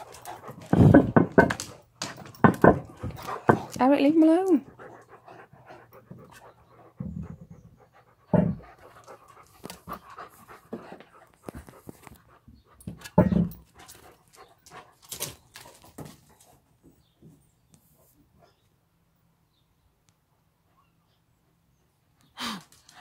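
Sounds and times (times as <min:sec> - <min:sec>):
dog panting: 0:00.0 - 0:01.1, 0:02.7 - 0:12.9
loud thumps: 0:00.6 - 0:01.7.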